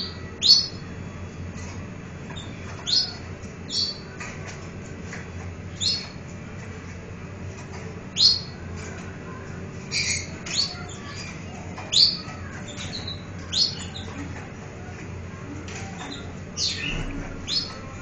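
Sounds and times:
canary chirping: 0.0 - 0.9, 1.6 - 4.6, 5.7 - 6.2, 7.6 - 14.6, 15.7 - 18.0.

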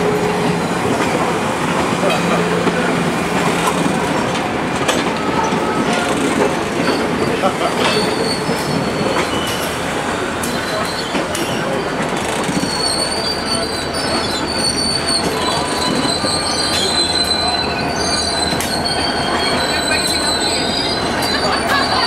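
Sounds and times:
rolling rumble of train cars: 0.0 - 22.0
train wheels squealing: 4.9 - 22.0.

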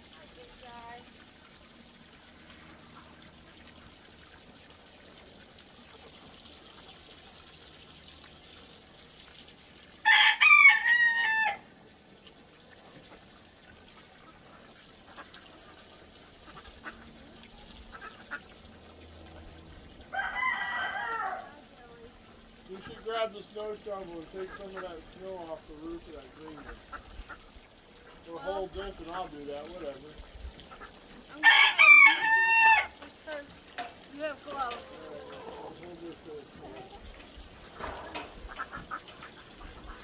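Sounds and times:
rooster crowing: 10.0 - 11.7, 20.1 - 21.6, 31.4 - 33.0.

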